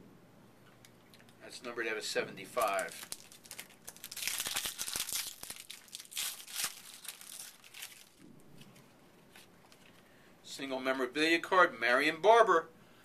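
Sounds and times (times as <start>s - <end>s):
foil wrapper crinkling: 2.5s - 10.0s.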